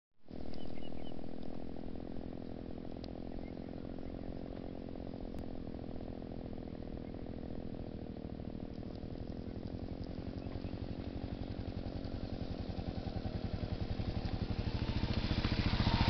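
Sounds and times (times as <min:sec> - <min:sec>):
motorcycle engine running: 0:00.3 - 0:16.0
bird chirps: 0:00.4 - 0:01.2, 0:03.2 - 0:05.2, 0:09.3 - 0:12.3.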